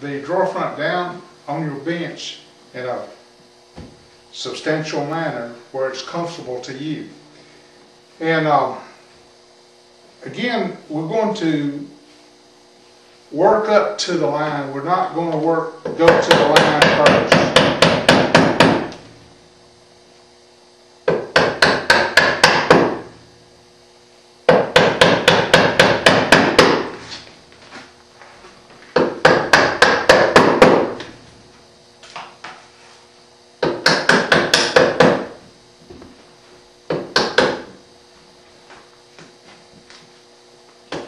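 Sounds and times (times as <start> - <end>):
mallet striking chisel: 24.5 - 26.9, 33.6 - 35.3, 36.9 - 37.7.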